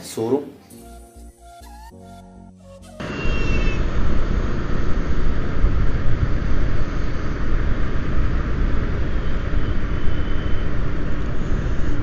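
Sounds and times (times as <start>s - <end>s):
wind rumble on microphone: 3.0s - 12.0s.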